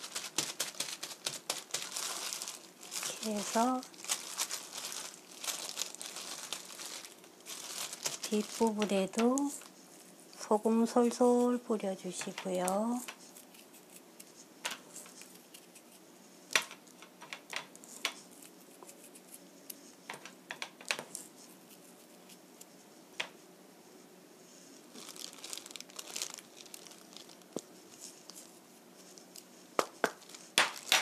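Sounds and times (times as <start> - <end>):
plastic glove crinkling: 0.0 - 22.5, 24.6 - 31.0.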